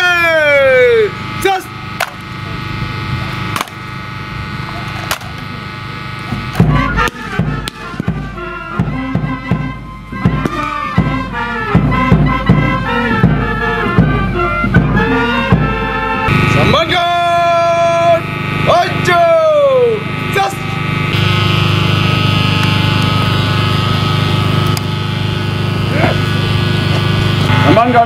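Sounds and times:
parade band playing: 0.0s - 28.0s
steady drum beat: 1.4s - 19.0s
sharp knocks: 2.0s - 2.2s.

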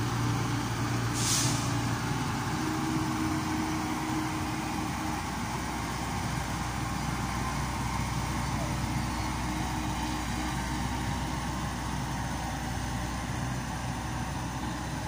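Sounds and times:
excavator diesel engine running: 0.0s - 15.0s
short hiss: 1.1s - 1.8s.

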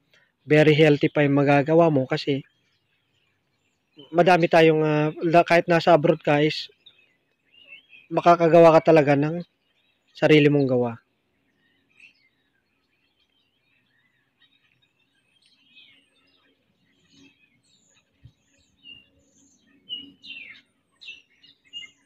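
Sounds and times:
birds chirping and whistling: 0.0s - 22.0s.

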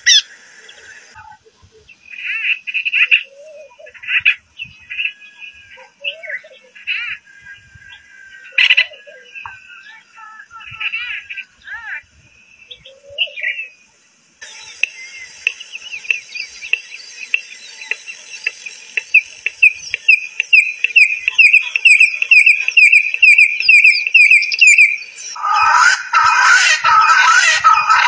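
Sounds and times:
bird singing whistled notes: 12.3s - 25.7s
spurfowl harsh crowing: 21.0s - 28.0s.

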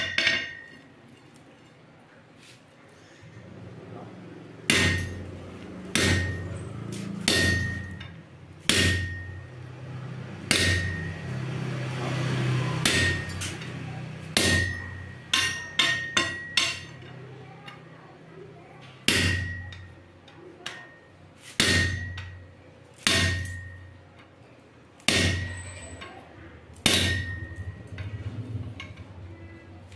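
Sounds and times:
power hammer clanging on metal: 4.6s - 17.9s, 18.9s - 24.4s, 25.0s - 29.9s.

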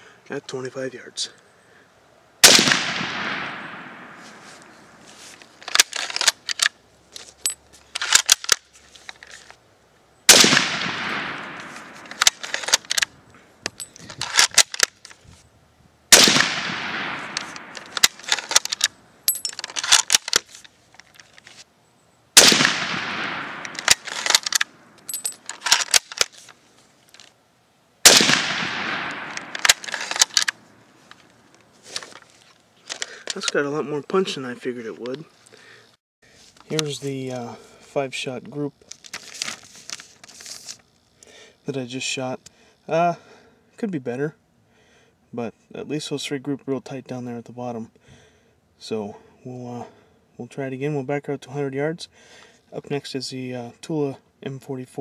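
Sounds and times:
rifle shots: 2.4s - 4.9s, 10.3s - 13.0s, 16.1s - 18.9s, 22.4s - 24.9s, 28.0s - 30.6s
rifle bolt clicking: 17.3s - 20.4s, 22.4s - 26.3s, 28.1s - 30.6s.

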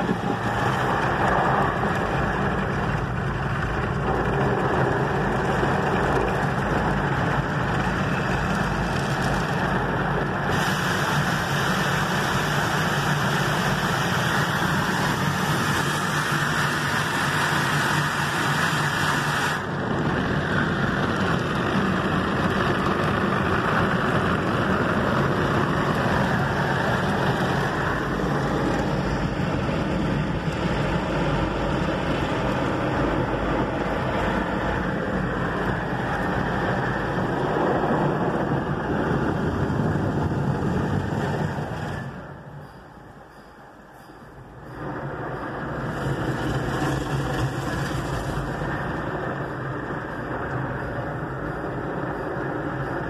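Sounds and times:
car wash brushes and water spray: 0.0s - 42.8s, 44.7s - 53.0s.

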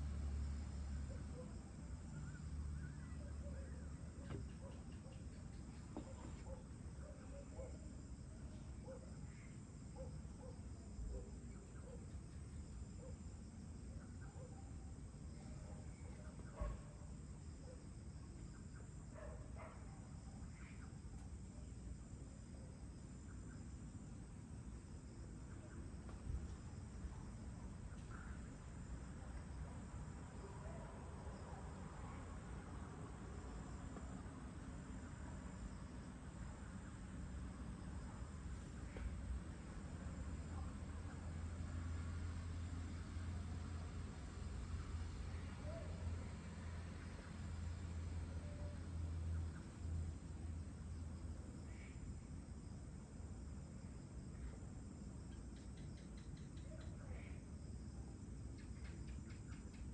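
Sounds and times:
crickets trilling: 0.0s - 59.9s.

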